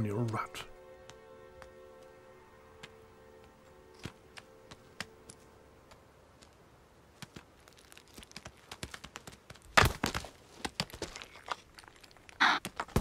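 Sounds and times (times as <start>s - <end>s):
hooves clattering on rock: 2.8s - 13.0s
small stones knocking: 7.2s - 13.0s.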